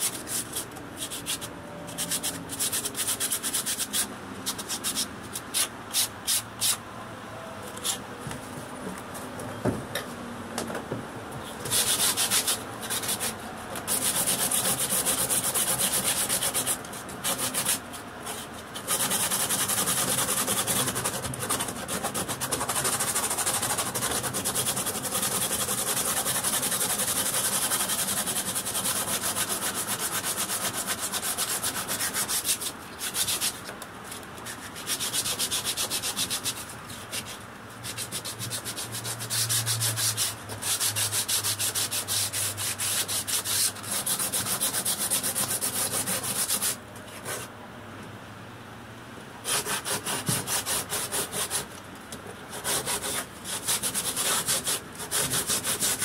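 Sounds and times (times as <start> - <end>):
fibreglass being sanded: 0.0 - 6.8, 11.5 - 47.5, 49.4 - 51.7, 52.5 - 56.0.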